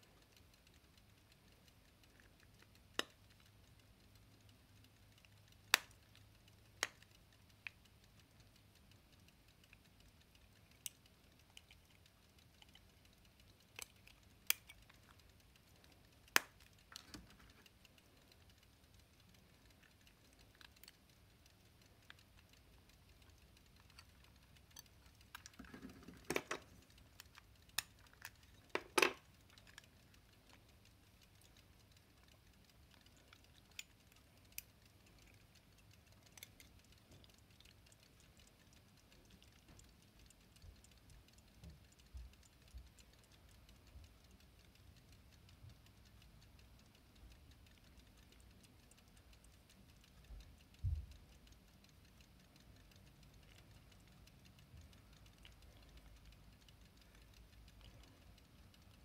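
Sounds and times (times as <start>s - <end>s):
pocket watch cases clicking: 25.2s - 26.8s, 27.6s - 29.8s.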